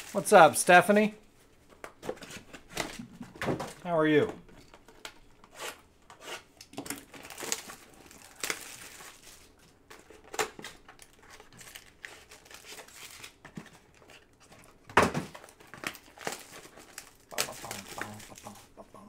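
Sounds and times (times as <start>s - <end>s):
shrink-wrap crinkling and tearing: 0.0s - 0.6s, 6.8s - 18.7s.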